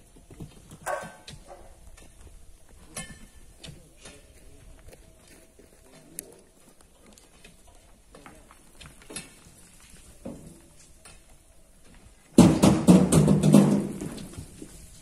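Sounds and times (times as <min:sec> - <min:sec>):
clatter of falling rocks: 0:08.2 - 0:11.2, 0:12.3 - 0:15.0.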